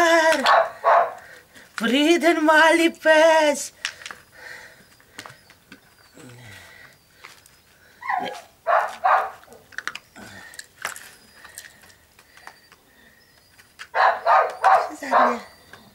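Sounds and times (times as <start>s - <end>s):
puppy yapping: 0.4s - 1.2s, 8.0s - 9.7s, 13.9s - 15.9s
puppy whining cry: 8.0s - 9.6s, 13.9s - 15.9s.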